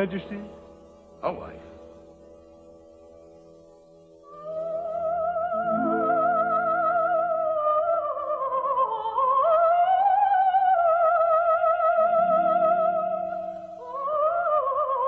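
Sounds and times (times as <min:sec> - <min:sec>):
soprano singing wordless melody: 0:04.2 - 0:15.0
soft orchestral chords: 0:05.6 - 0:07.2.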